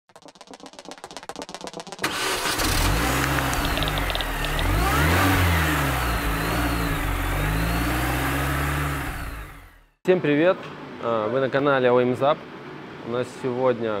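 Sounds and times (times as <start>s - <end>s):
car engine starting and revving: 2.0s - 10.0s.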